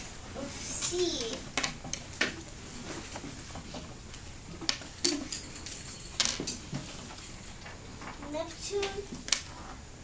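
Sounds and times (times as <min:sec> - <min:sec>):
classroom background noise: 0:00.0 - 0:10.0.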